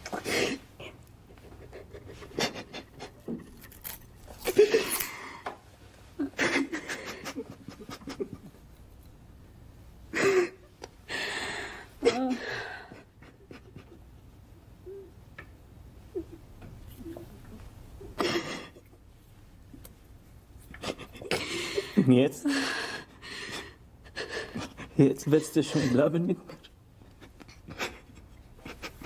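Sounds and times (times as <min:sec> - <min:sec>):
woman moaning: 0:12.0 - 0:12.9
crying breaths and gasps: 0:20.8 - 0:25.0.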